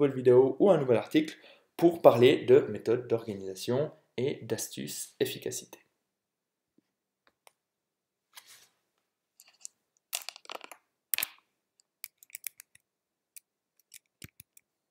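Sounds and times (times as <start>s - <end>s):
rustling scraping noises: 8.3s - 8.8s
small clicks: 13.4s - 14.7s.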